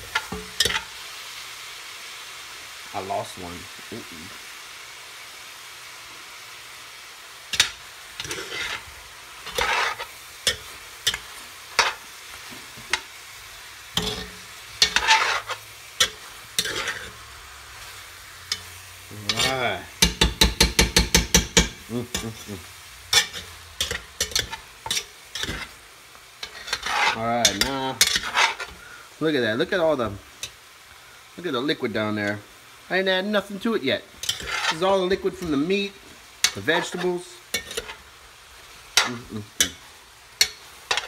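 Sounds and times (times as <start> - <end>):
metal utensil scraping pot: 0.0 - 0.9, 7.5 - 13.1, 14.0 - 17.3, 18.4 - 22.4, 23.1 - 25.8, 26.4 - 28.8, 34.2 - 35.8, 36.4 - 38.0
food sizzling: 0.0 - 41.0.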